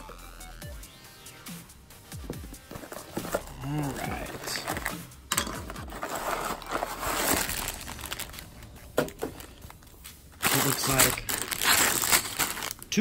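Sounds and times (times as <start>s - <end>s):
plastic bags crinkling: 2.7s - 13.0s.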